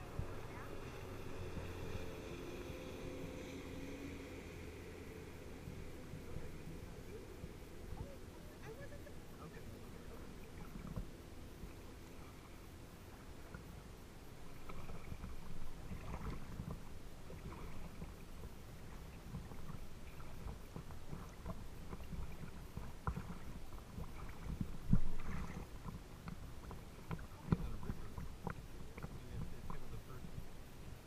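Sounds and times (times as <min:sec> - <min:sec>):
water lapping against kayak hull: 0:00.0 - 0:31.0
small splashes and drips: 0:07.9 - 0:30.5.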